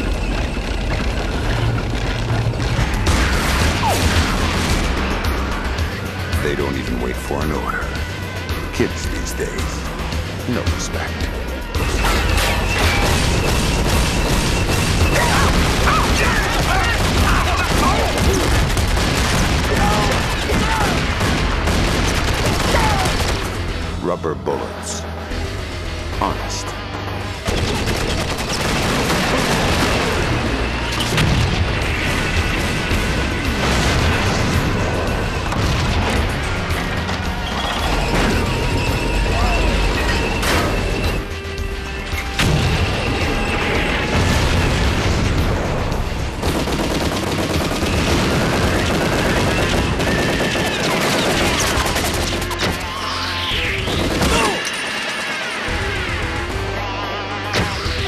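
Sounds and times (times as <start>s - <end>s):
explosions: 0.0s - 7.0s, 11.7s - 23.7s, 27.5s - 41.3s, 42.4s - 52.3s
dramatic music score: 0.0s - 58.0s
gunfire: 11.8s - 23.7s, 27.5s - 38.8s, 42.4s - 52.9s, 53.8s - 55.6s
cartoon gunfire: 12.2s - 23.5s, 53.7s - 54.8s.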